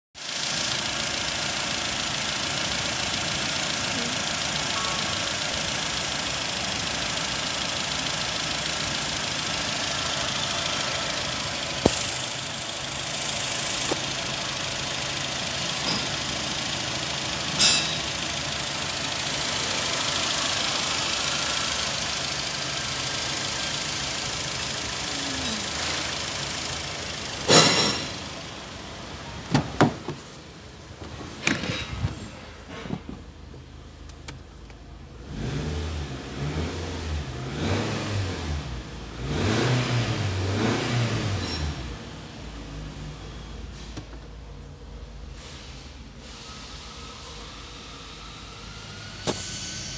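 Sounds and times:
car engine idling: 0:00.2 - 0:35.7.

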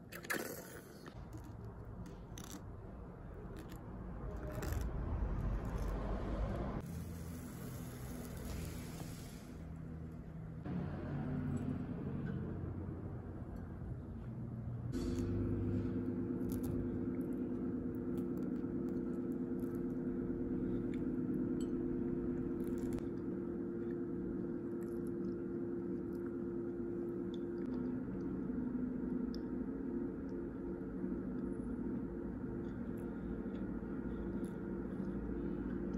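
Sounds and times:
steady low hum: 0:00.0 - 0:35.9
crusty bread crunching when chewed: 0:03.4 - 0:06.2, 0:16.4 - 0:20.0, 0:22.6 - 0:23.2.

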